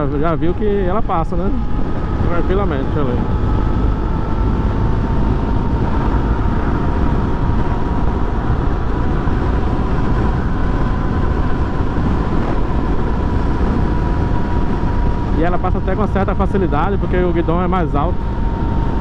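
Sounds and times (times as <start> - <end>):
motorcycle engine running: 0.0 - 19.0
wind rush on microphone: 0.0 - 19.0.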